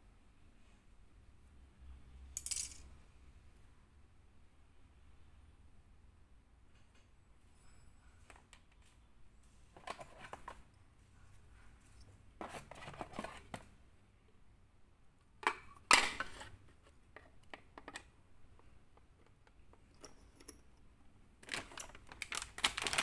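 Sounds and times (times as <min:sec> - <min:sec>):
plastic wrapping rustling: 0:21.4 - 0:23.0.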